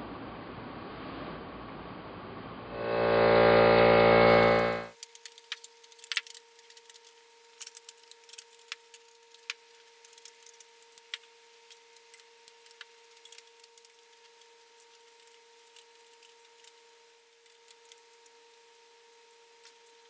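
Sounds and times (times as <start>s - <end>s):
faint steady hum: 1.7s - 4.9s.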